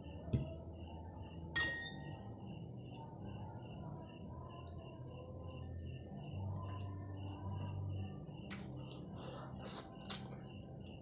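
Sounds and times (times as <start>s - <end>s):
crickets trilling: 0.0s - 11.0s
sharp metallic clink: 1.6s - 2.1s.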